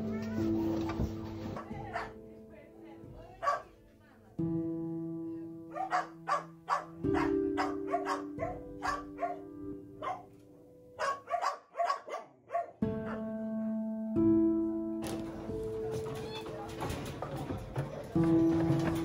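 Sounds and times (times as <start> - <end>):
background music with held notes: 0.0 - 11.6, 12.8 - 19.0
dogs barking: 1.4 - 2.2, 3.4 - 3.8, 5.7 - 10.4, 11.0 - 13.3.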